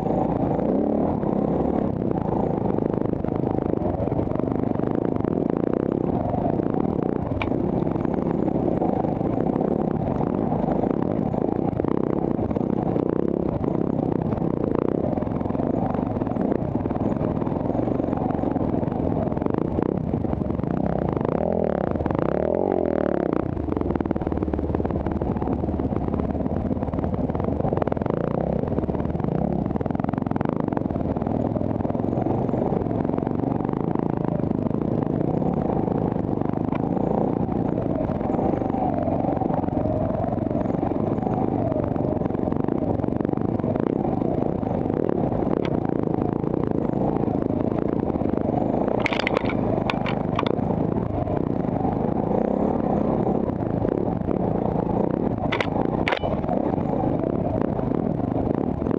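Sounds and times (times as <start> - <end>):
dirt bike engine running: 0.0 - 58.9
sharp clattering clicks: 48.9 - 50.6, 55.4 - 56.6.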